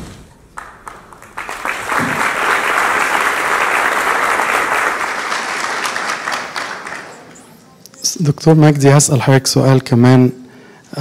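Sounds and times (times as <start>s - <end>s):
audience applauding: 0.5s - 7.4s.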